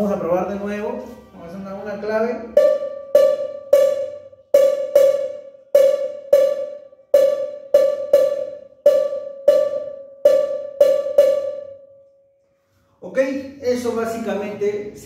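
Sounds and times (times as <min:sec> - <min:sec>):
cowbell struck by pedal beater: 0:02.5 - 0:11.8.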